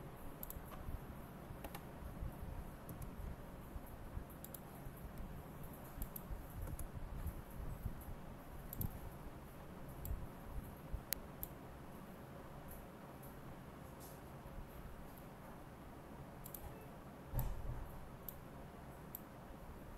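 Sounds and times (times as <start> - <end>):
computer mouse clicks: 0.4 - 0.9, 1.6 - 1.9, 2.9 - 3.2, 4.4 - 5.3, 6.0 - 6.9, 8.7 - 9.0, 10.0 - 10.2, 16.4 - 16.8, 18.2 - 18.4, 19.1 - 19.3.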